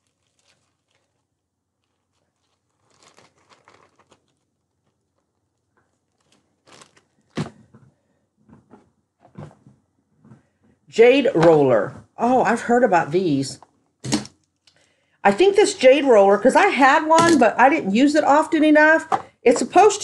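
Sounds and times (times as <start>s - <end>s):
plastic pouch crinkling: 0.0s - 7.7s.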